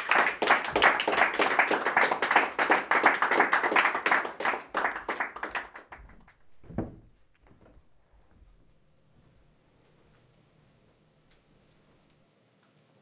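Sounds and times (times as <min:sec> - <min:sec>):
audience applauding: 0:00.0 - 0:06.6.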